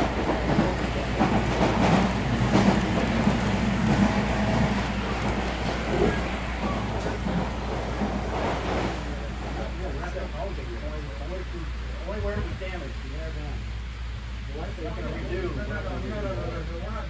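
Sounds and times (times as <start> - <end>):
model train wheels rumbling: 0.0 - 13.6.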